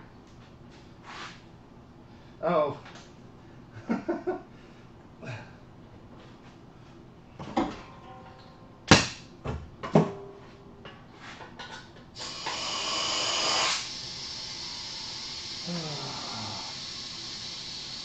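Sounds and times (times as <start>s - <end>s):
equipment knocks and clunks: 7.4s - 10.4s.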